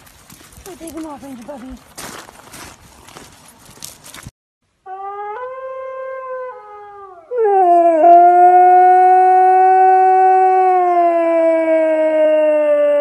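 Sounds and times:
husky howling: 0:04.9 - 0:13.0.

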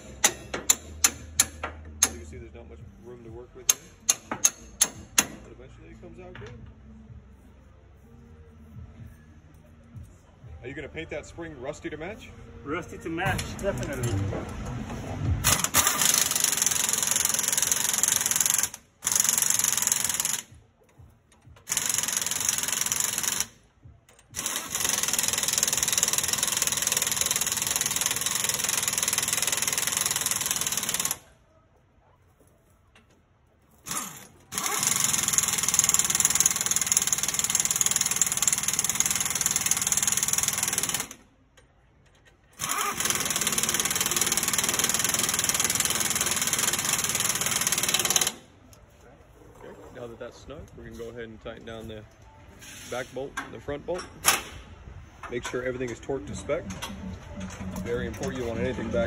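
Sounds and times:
impact wrench hammering: 0:00.0 - 0:02.4, 0:03.6 - 0:05.6, 0:15.4 - 0:20.6, 0:21.4 - 0:23.6, 0:24.2 - 0:31.2, 0:33.9 - 0:41.2, 0:42.6 - 0:48.4.

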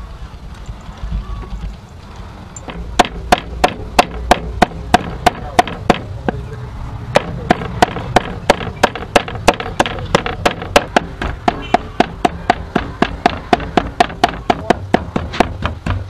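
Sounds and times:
cleaver chopping on wooden board: 0:02.7 - 0:06.4, 0:07.1 - 0:16.0.

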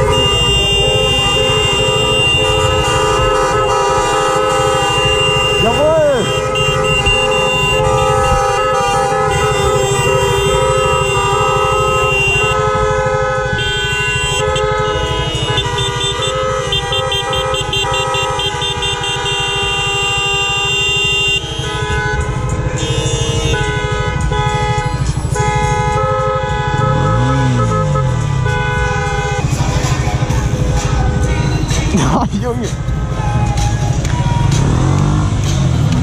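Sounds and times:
car horns honking: 0:00.0 - 0:36.0
rapid horn toots: 0:00.0 - 0:36.0
motorcycle engine idling: 0:17.4 - 0:31.9.

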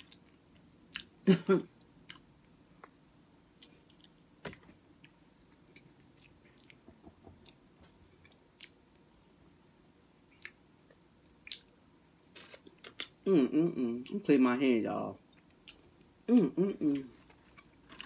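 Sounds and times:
chewing with wet mouth clicks: 0:11.4 - 0:11.8.

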